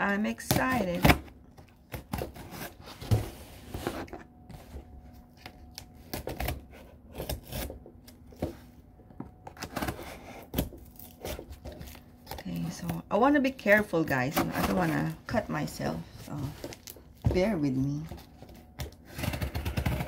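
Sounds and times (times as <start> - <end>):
scissors cutting packing tape: 5.4 - 7.8.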